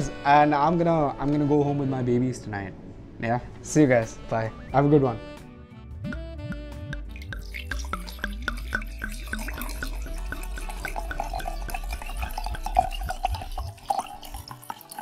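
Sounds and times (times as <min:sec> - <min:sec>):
wine pouring into a glass: 0:06.8 - 0:15.0.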